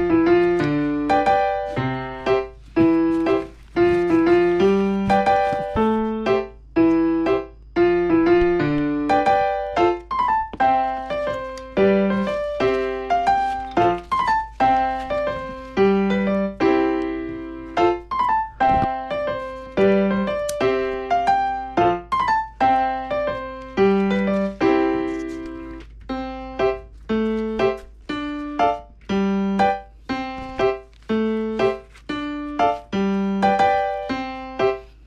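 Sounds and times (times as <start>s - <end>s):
gentle instrumental melody: 0.0s - 35.0s.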